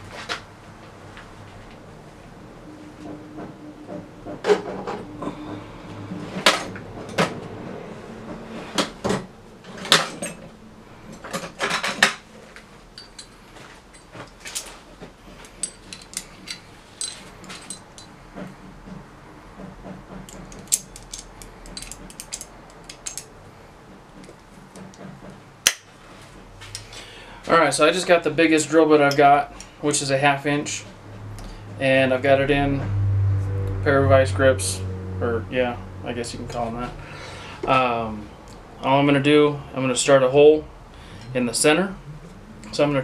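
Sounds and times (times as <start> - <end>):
metal hand tools clinking: 13.0 - 14.8, 15.4 - 18.1, 20.3 - 23.3.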